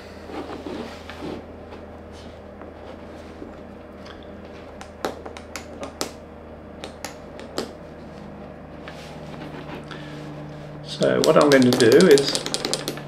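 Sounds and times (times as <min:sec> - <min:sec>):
steady low hum: 0:00.0 - 0:13.0
wooden clicks and clacks: 0:11.2 - 0:13.0.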